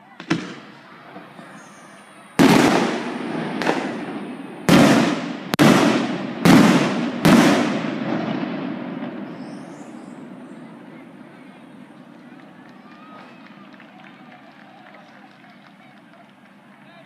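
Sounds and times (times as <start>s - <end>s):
rolling rumble: 0.0s - 17.0s
firework shells bursting: 0.2s - 10.7s.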